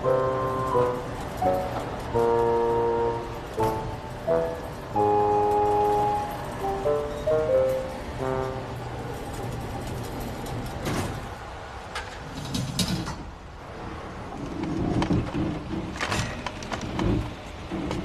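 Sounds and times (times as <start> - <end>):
background music: 0.0 - 9.5
outdoor street noise: 0.0 - 18.0
rattles and clatters: 0.1 - 2.8, 8.9 - 13.5, 14.3 - 18.0.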